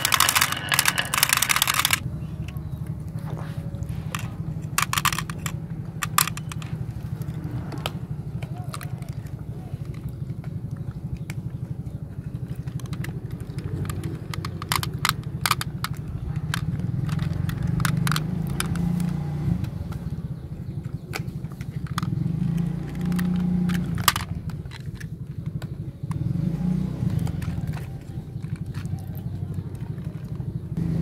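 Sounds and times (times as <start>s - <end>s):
glass marbles rattling in plastic: 0.0s - 2.0s
low motor rumble: 0.0s - 31.0s.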